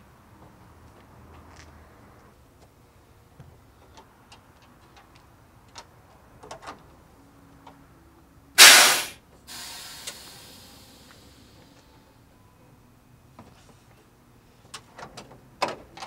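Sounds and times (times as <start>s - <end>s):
air hissing: 8.6s - 11.6s.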